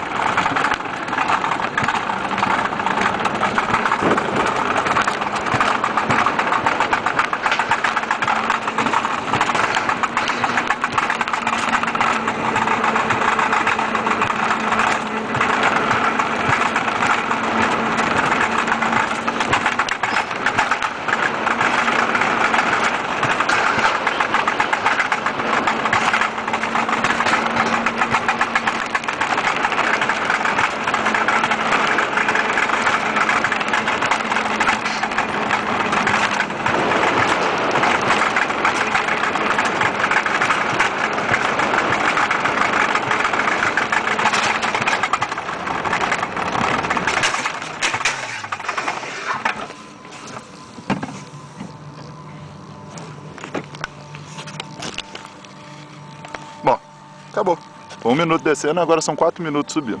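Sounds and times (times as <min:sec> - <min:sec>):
sled wheels rumbling on rails: 0:00.0 - 1:00.0
faint hum: 0:49.1 - 1:00.0.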